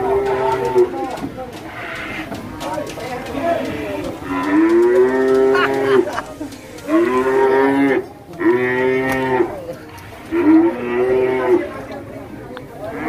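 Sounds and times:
cow mooing: 0:00.0 - 0:01.0, 0:04.2 - 0:06.2, 0:06.9 - 0:09.6, 0:10.3 - 0:11.8.

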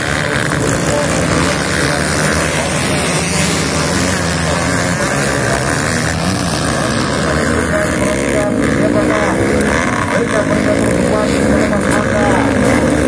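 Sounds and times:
dirt bike engines droning: 0:00.0 - 0:13.0.

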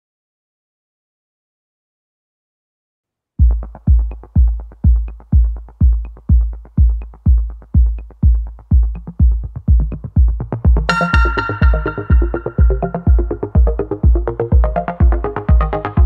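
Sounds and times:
electronic music with bass-drum beat: 0:03.4 - 0:16.0.

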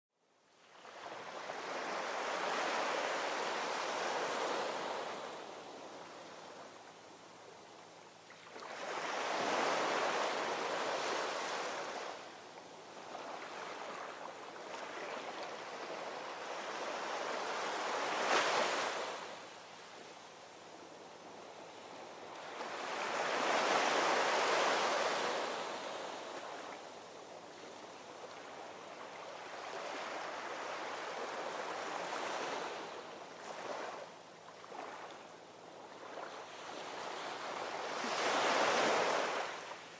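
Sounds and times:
ocean waves breaking: 0:36.2 - 0:39.7.

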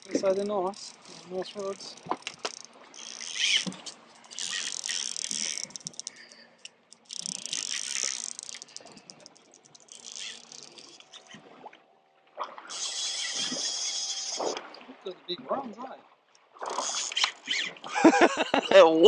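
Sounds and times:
fishing reel drag buzzing: 0:00.0 - 0:11.6, 0:12.6 - 0:14.6, 0:16.6 - 0:18.0.

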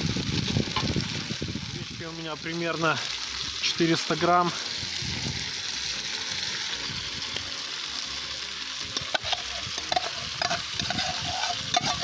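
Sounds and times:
dry grain pouring: 0:00.0 - 0:12.0
food sizzling in a pot: 0:00.0 - 0:12.0
metal spoon scraping and tapping bowl: 0:09.0 - 0:12.0.

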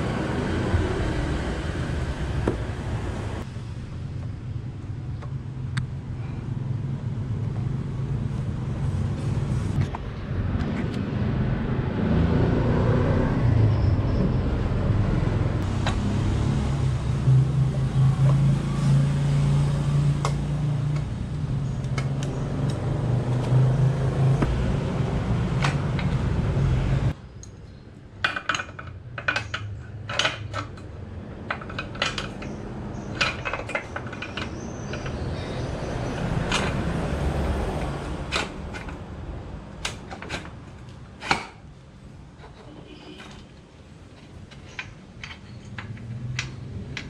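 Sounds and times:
low engine drone: 0:00.0 - 0:27.2.

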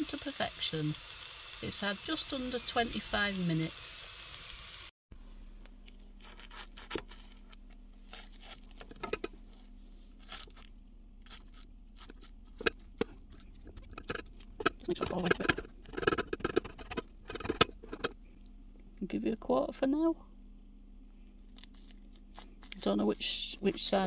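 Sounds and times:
pastry crust crackling and crunching: 0:05.8 - 0:18.1, 0:21.2 - 0:24.0
spatula scraping a pan: 0:11.3 - 0:18.2.

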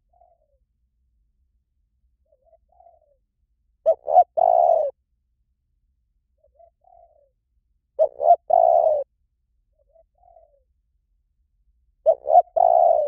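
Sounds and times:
dove cooing: 0:00.0 - 0:00.6, 0:02.2 - 0:03.2, 0:03.8 - 0:05.0, 0:06.4 - 0:07.4, 0:08.0 - 0:09.1, 0:09.8 - 0:10.7, 0:12.0 - 0:13.0.

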